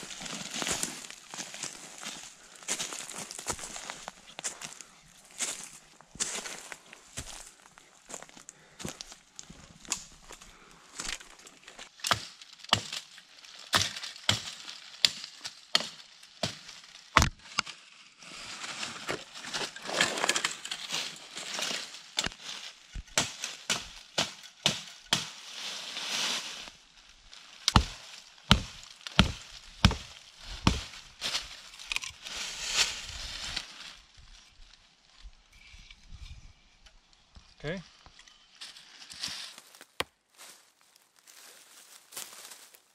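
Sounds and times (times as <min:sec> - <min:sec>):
dry leaves rustling: 0:00.0 - 0:09.5, 0:10.5 - 0:35.1, 0:38.6 - 0:42.9
chopping into wooden branch: 0:12.0 - 0:13.0, 0:13.7 - 0:15.2, 0:15.8 - 0:17.6, 0:23.0 - 0:25.4, 0:27.7 - 0:31.0.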